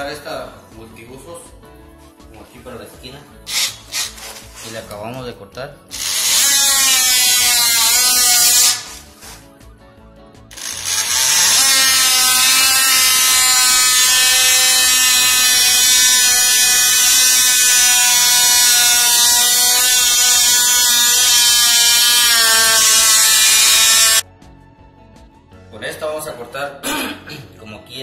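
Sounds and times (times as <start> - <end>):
oscillating multi-tool cutting wood: 5.9 - 9.0, 10.5 - 24.2.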